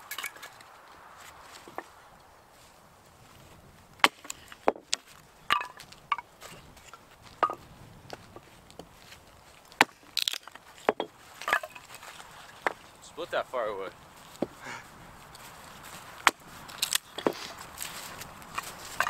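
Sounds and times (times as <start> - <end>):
axe chopping firewood: 4.0 - 7.6, 9.7 - 12.8, 14.4 - 14.6, 16.2 - 19.0.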